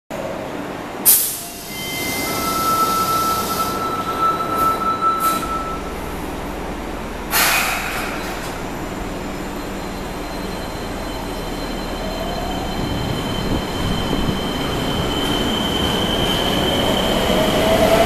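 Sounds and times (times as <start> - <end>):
low train rumble: 0.1 - 18.0
steady high tone: 1.6 - 7.2
sharp hiss of air: 7.3 - 8.2.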